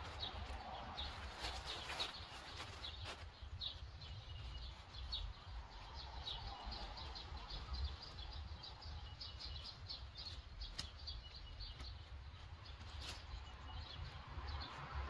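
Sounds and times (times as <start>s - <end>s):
songbird chirping: 0.0s - 15.0s.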